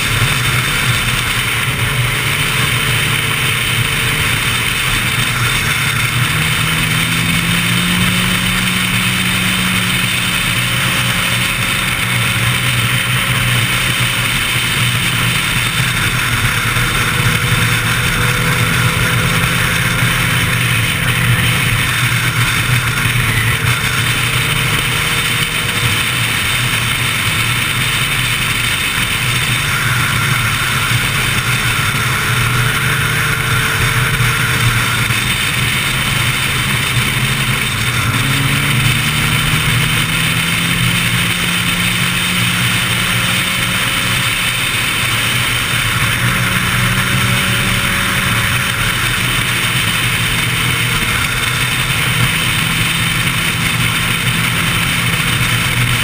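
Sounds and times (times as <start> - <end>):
motorcycle engine at speed: 0.0 - 56.0.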